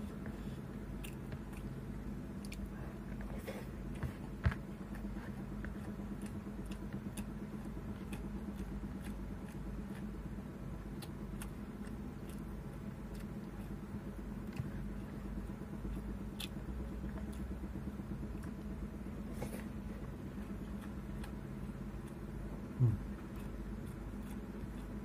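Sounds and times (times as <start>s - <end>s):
person eating and chewing: 0.0s - 25.0s
steady low hum: 0.0s - 25.0s.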